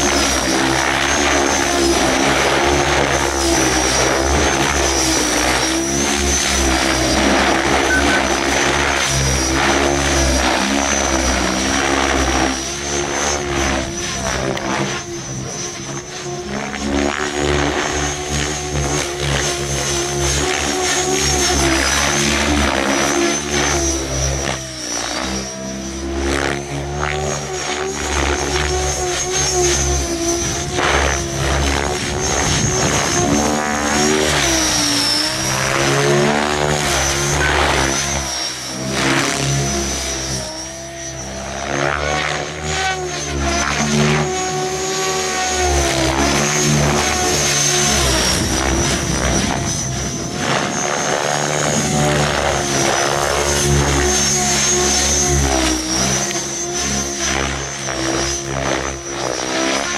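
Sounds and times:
helicopter rotor buzzing: 0.0 - 59.9
high steady whine: 0.0 - 59.9.

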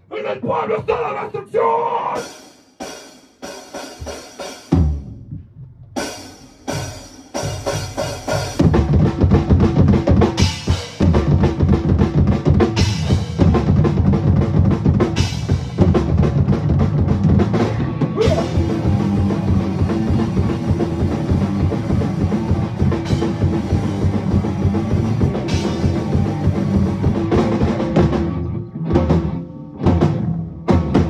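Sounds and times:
drum kit fast beat: 2.2 - 5.2, 6.0 - 28.3
ska band playing instrumental: 6.1 - 31.0
electric guitar: 8.6 - 31.0.

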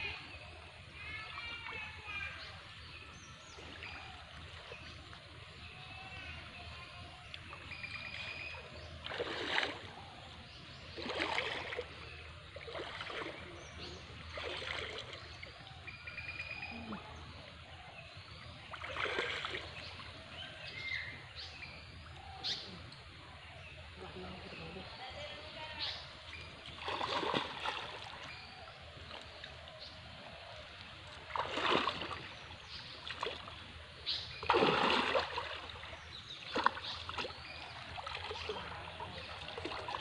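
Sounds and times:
water splashing from wading: 7.1 - 23.2, 26.0 - 40.0.

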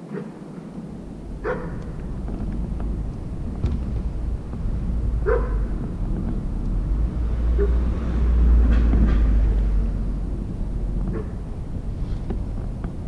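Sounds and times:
steady low rumble: 0.0 - 13.0
dog yelping: 1.4 - 1.8, 5.2 - 5.6.

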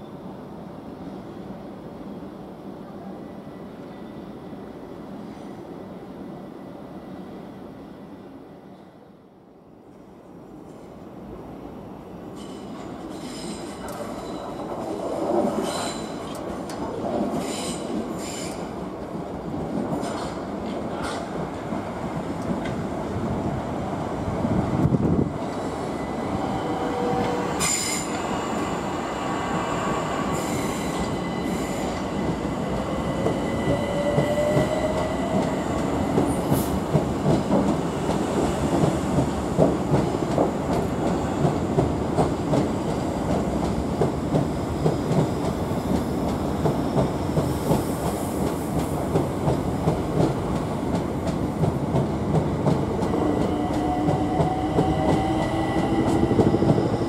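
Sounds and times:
electric train whine: 25.0 - 36.3, 52.9 - 57.0.

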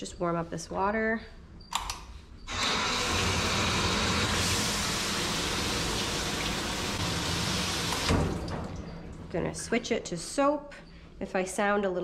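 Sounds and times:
hose sprayer water hissing: 2.5 - 8.1.

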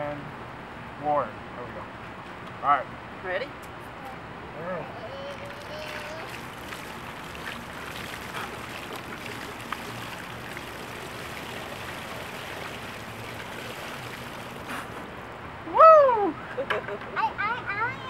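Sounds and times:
water pouring from bucket: 5.3 - 15.1
water splashing onto gravel: 5.3 - 15.1.

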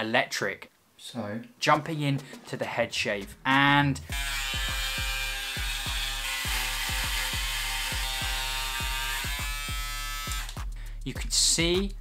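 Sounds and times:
background music with thumping beat: 1.8 - 12.0
electric shaver buzzing: 4.1 - 10.6.

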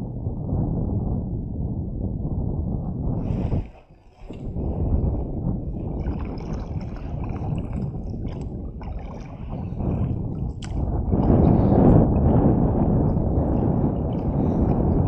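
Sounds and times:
wind buffeting microphone: 0.0 - 15.0
water sloshing against hull: 3.2 - 15.0.

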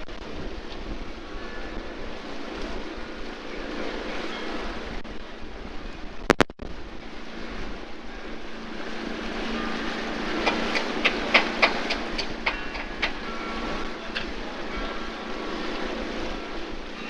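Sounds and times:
boat motor humming: 0.0 - 17.0
rushing water: 0.0 - 17.0
sharp knocks: 10.4 - 13.2.

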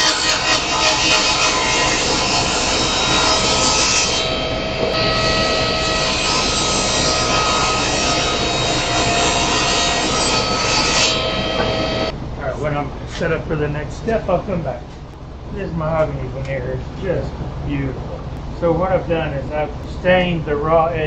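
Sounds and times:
table saw cutting wood: 0.0 - 12.1.

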